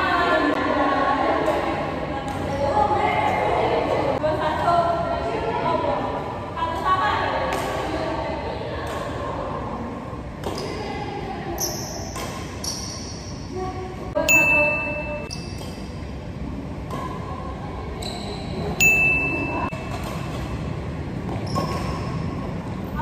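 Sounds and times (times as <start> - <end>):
rackets hitting shuttlecock: 6.7 - 8.0, 10.3 - 10.8, 11.6 - 13.3, 14.3 - 17.5, 18.8 - 22.3.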